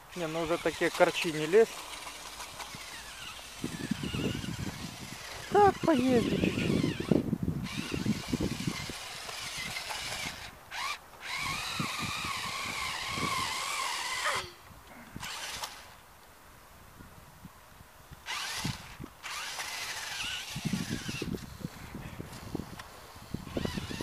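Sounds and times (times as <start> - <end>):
electric motor whining: 0.0 - 14.6, 15.2 - 16.0, 18.2 - 24.0.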